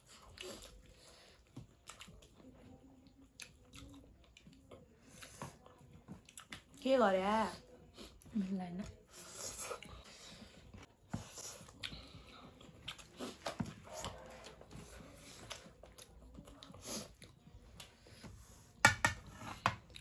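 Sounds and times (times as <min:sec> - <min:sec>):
chewing and lip smacking: 0:00.0 - 0:06.8, 0:10.8 - 0:18.1.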